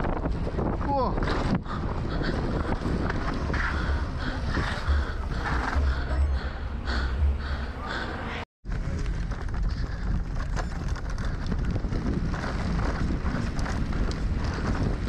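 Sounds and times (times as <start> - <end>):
wind buffeting microphone: 0.0 - 7.6, 8.7 - 15.0
low rumble: 0.0 - 15.0
bike clicks and rattles: 8.7 - 15.0.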